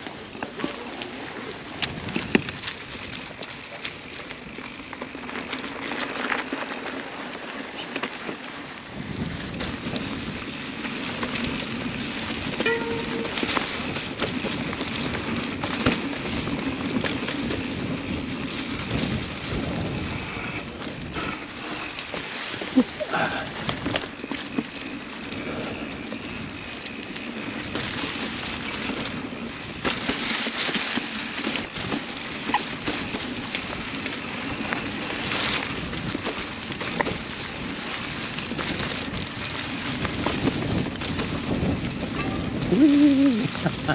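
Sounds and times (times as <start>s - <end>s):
bike clicks and knocks: 0.0s - 43.9s
bike tyres on dirt: 0.0s - 43.9s
wind on microphone: 8.8s - 24.2s, 31.7s - 43.9s.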